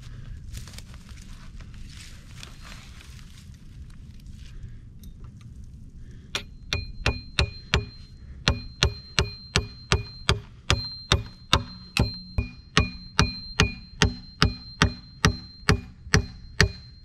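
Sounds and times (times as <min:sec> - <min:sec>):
hammer hitting nail: 0:06.4 - 0:17.0.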